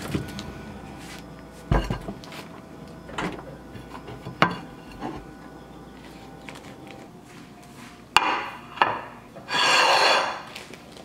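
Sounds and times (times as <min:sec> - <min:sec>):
refrigerator knocks and thumps: 0:01.7 - 0:02.2.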